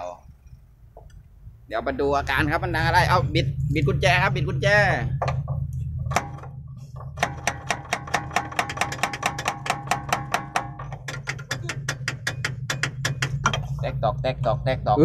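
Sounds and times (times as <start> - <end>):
steady low hum: 0.0 - 15.0
rapid metallic tapping: 5.2 - 13.9.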